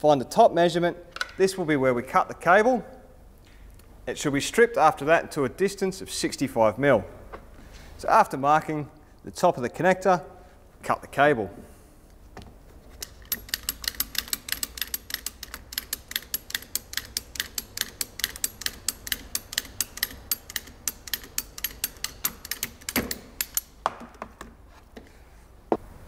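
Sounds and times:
ratchet cable cutter clicking: 0:13.0 - 0:23.8.

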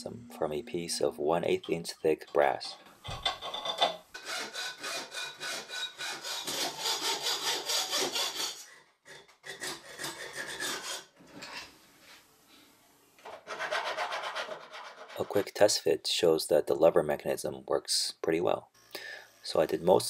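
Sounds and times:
hacksaw cutting metal: 0:04.2 - 0:11.1.

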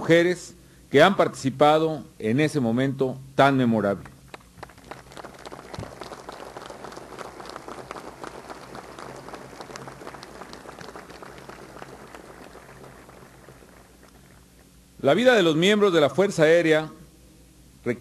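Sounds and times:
audience applauding: 0:04.3 - 0:14.4.

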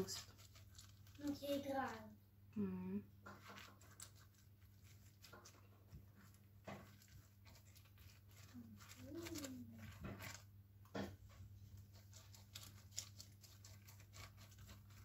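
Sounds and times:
faint voice: 0:08.6 - 0:10.0.

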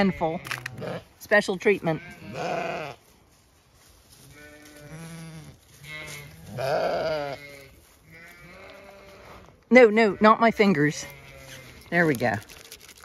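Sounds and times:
sheep bleating: 0:00.0 - 0:01.1, 0:01.8 - 0:03.0, 0:04.3 - 0:12.0.

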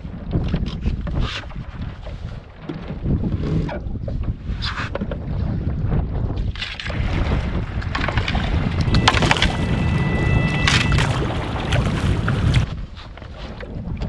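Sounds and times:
water rushing along canoe hull: 0:00.0 - 0:14.0
wind buffeting microphone: 0:00.0 - 0:14.0
paddle splashing in water: 0:06.7 - 0:14.0
thin high tone: 0:08.8 - 0:12.6.

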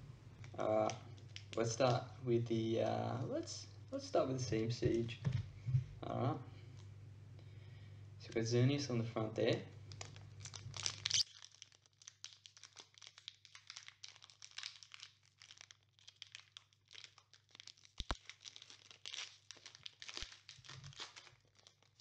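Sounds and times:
foil wrapper crinkling and tearing: 0:00.4 - 0:02.0, 0:09.9 - 0:22.0.

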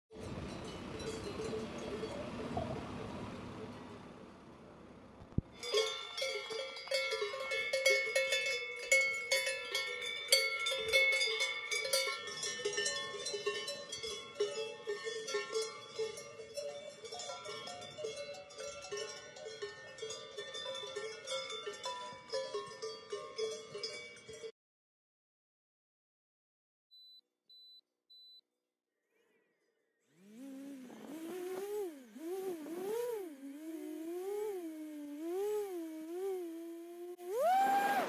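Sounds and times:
cowbells clanking: 0:00.1 - 0:02.9, 0:05.5 - 0:24.5.

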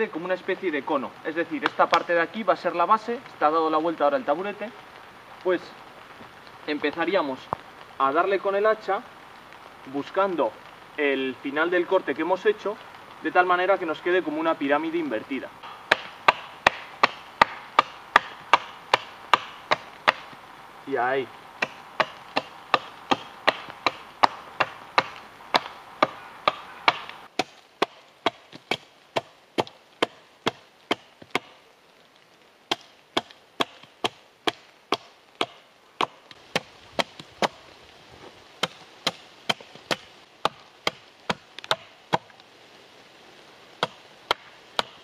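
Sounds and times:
hatchet chopping into log: 0:15.7 - 0:20.4, 0:21.6 - 0:31.5, 0:32.7 - 0:37.6, 0:38.6 - 0:42.3, 0:43.8 - 0:45.0.

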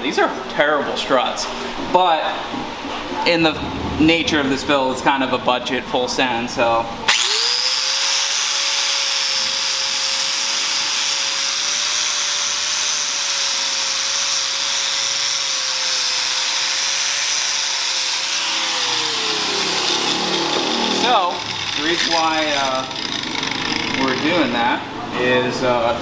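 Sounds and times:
angle grinder grinding metal: 0:07.1 - 0:24.6.

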